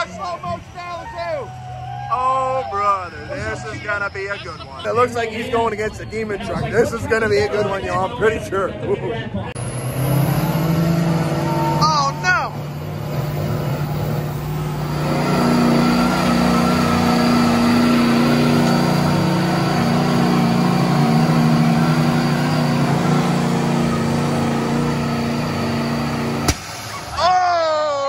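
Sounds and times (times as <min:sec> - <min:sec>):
truck engines at high revs: 0:00.0 - 0:28.0.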